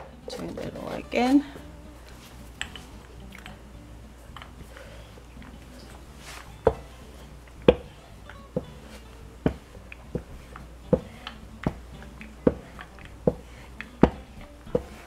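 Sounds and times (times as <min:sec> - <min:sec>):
rolling pin on dough: 0:06.1 - 0:15.0
rolling pin knocking on board: 0:07.6 - 0:07.9, 0:09.4 - 0:11.8, 0:12.4 - 0:13.4, 0:14.0 - 0:14.9.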